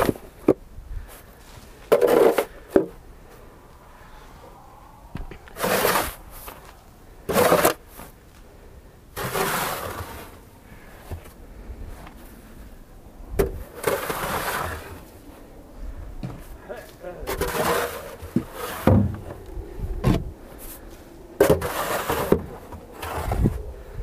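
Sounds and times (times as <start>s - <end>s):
snow shovel scraping wood: 1.9s - 2.8s, 5.5s - 8.2s, 9.2s - 10.4s, 13.6s - 15.2s, 17.2s - 19.3s, 20.1s - 23.6s.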